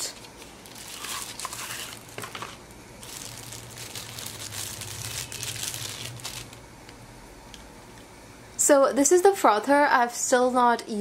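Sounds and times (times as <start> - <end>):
plastic wrapping crinkling: 0.0 - 6.7.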